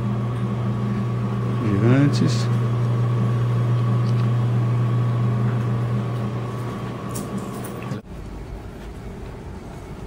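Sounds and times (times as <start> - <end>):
vending machines humming: 0.0 - 10.0.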